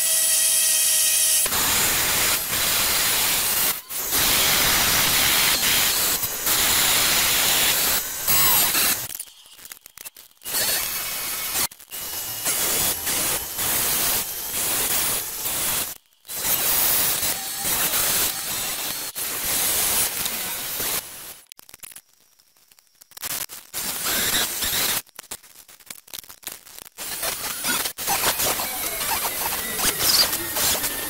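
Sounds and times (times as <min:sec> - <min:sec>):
milling machine cutting steel: 0:00.0 - 0:09.1, 0:27.0 - 0:31.0.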